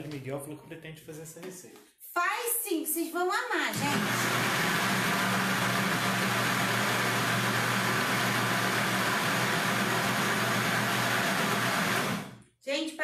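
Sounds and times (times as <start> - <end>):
blender running: 3.7 - 12.4.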